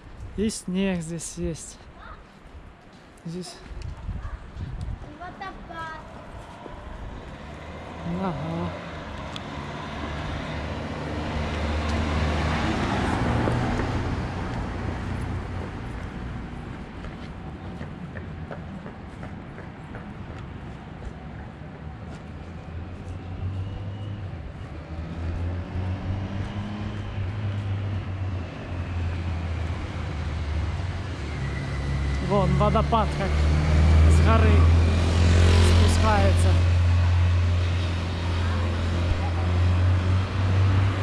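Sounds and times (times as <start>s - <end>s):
wind buffeting microphone: 3.6s - 8.0s
truck driving past: 23.4s - 41.0s.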